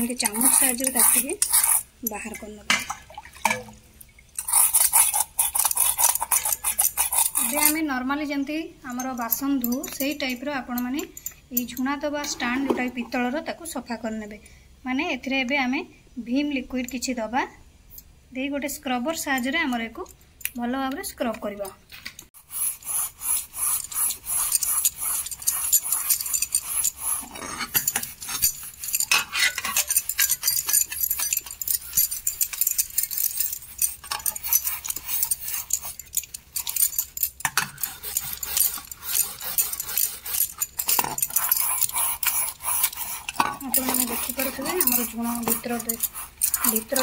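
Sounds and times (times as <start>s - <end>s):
scouring pad rasping on metal: 0.0s - 1.9s, 4.5s - 7.8s, 22.4s - 37.0s, 37.6s - 47.0s.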